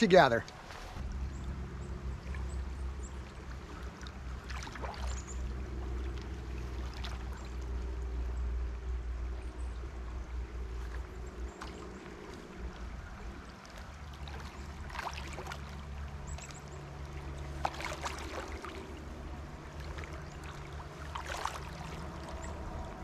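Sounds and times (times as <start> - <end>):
stream rippling: 0.0 - 23.0
low rumble: 0.9 - 23.0.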